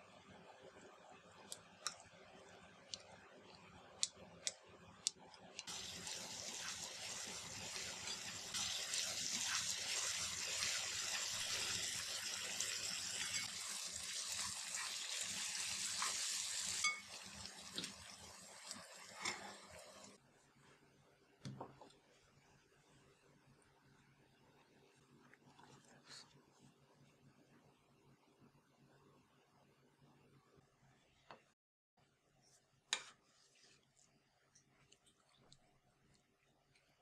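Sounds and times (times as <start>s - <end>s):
onions sizzling in hot oil: 5.7s - 20.2s.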